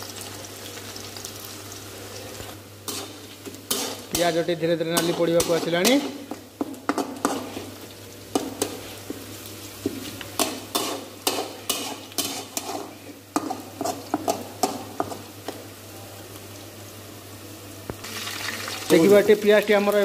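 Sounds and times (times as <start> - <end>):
onions sizzling in hot oil: 0.0 - 20.0
metal spatula scraping a pan: 2.9 - 6.2, 10.4 - 15.1.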